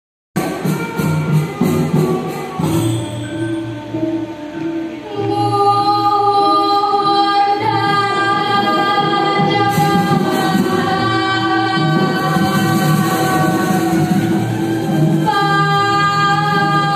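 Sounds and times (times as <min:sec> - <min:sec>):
ensemble instruments playing: 0:00.4 - 0:16.9
group singing long notes: 0:05.1 - 0:16.9.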